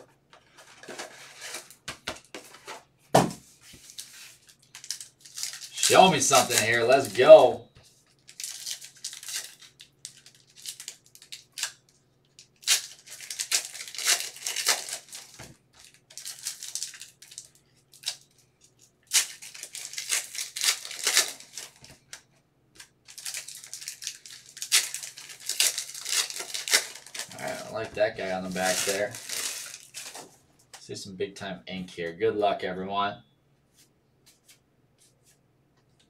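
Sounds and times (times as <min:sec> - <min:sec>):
foil wrappers crinkling: 0:03.6 - 0:22.2, 0:22.8 - 0:30.4
foil packs being torn open: 0:03.8 - 0:07.4, 0:08.2 - 0:11.8, 0:12.4 - 0:18.3, 0:19.0 - 0:22.1, 0:22.8 - 0:30.3.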